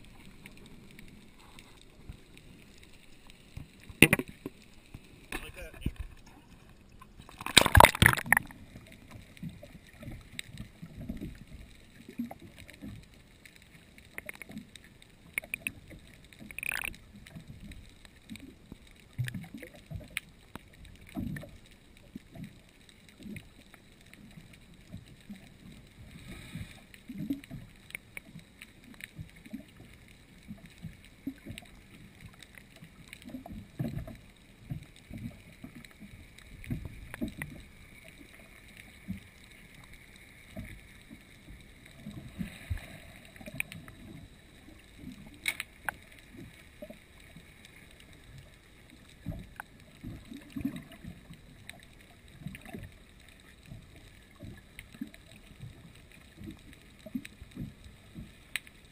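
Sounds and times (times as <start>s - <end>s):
underwater knocks and thumps: 3.5s - 13.0s, 33.2s - 37.7s
camera splashing into water: 7.4s - 8.5s.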